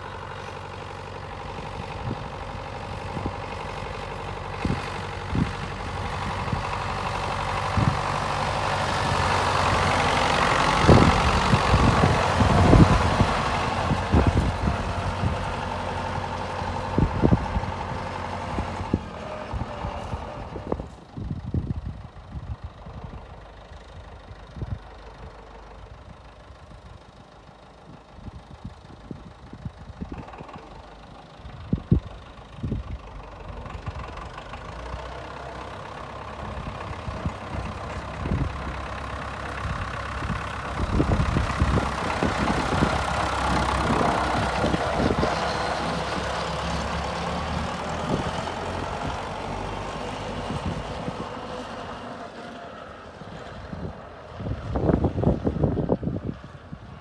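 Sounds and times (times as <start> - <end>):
tractor engine running: 0.0 - 57.0
wind buffeting microphone: 1.5 - 23.4, 31.4 - 34.4, 35.8 - 52.0, 53.3 - 57.0.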